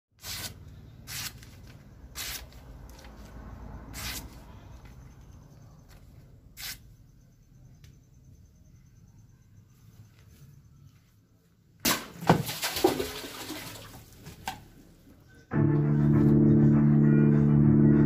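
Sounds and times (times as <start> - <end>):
sword blade slicing paper: 0.2 - 1.6, 2.2 - 2.6, 4.0 - 4.3.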